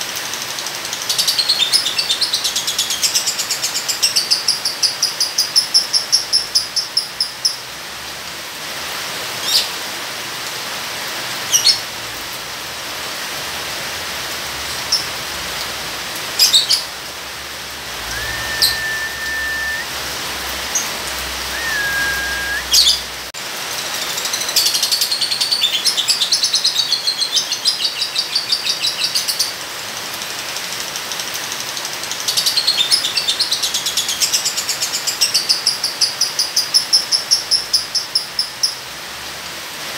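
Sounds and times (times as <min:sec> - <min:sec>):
rain hiss: 0:00.0 - 0:39.9
short steady whistles: 0:17.9 - 0:20.0, 0:21.4 - 0:23.0
lovebird chattering chirps: 0:18.1 - 0:19.8, 0:21.5 - 0:23.0.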